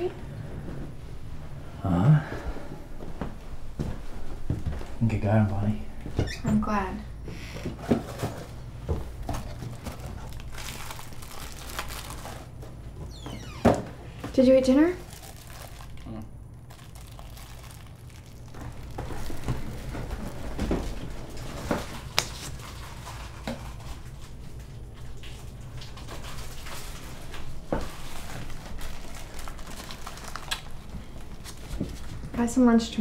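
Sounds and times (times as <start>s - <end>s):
low steady hum: 0.0s - 33.0s
packaging rustling: 9.1s - 13.8s, 15.0s - 24.4s, 25.2s - 32.3s.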